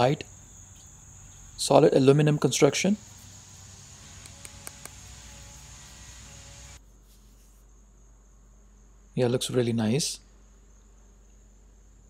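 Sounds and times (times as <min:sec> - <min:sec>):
background hiss: 0:00.0 - 0:12.0
high-pitched whine: 0:01.3 - 0:06.8.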